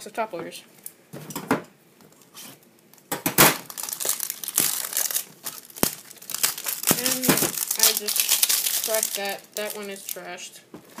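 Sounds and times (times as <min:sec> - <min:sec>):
plastic wrapping crinkling and tearing: 0:02.2 - 0:10.3.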